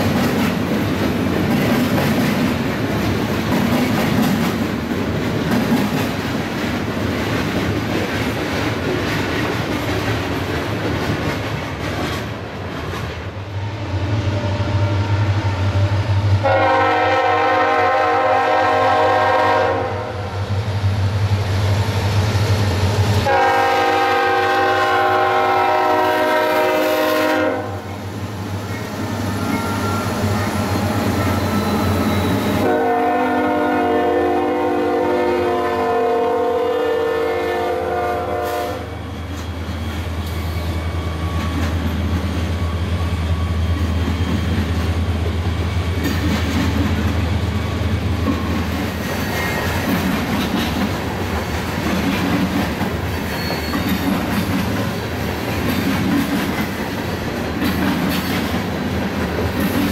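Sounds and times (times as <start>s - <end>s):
train cars rumbling and clattering: 0.0s - 59.9s
locomotive air horn blasts: 16.4s - 20.3s, 23.2s - 27.9s, 32.4s - 39.0s.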